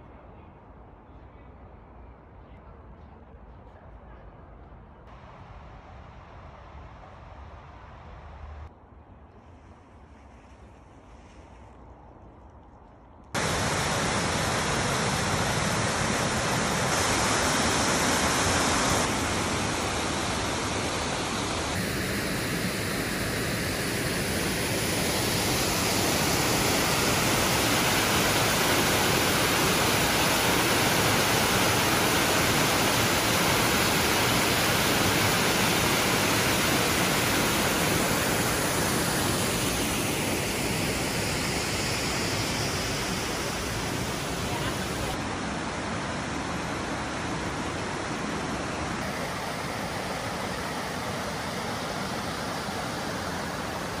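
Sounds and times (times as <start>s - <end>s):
waterfall and river rushing: 13.4s - 54.0s.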